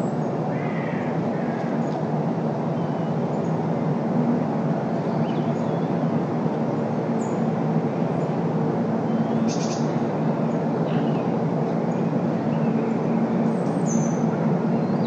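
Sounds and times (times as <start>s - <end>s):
road traffic noise: 0.0s - 15.0s
small birds chirping: 9.1s - 10.0s, 11.9s - 15.0s.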